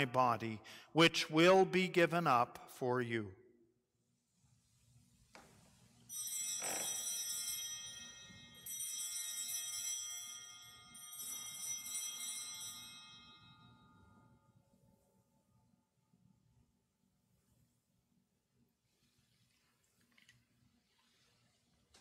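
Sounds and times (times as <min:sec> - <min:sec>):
altar bells jingling: 0:06.1 - 0:14.4.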